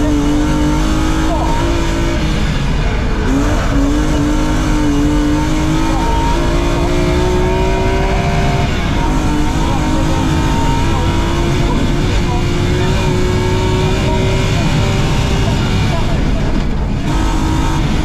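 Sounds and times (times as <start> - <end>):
rally car engine revving: 0.0 - 18.0
road and tyre noise: 0.0 - 18.0.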